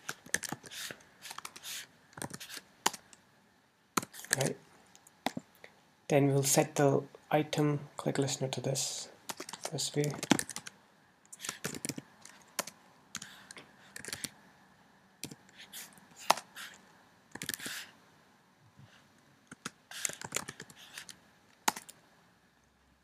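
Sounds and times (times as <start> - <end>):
computer keyboard typing: 0.0 - 0.7, 2.2 - 3.1, 9.3 - 10.8, 11.4 - 14.4, 19.5 - 22.0.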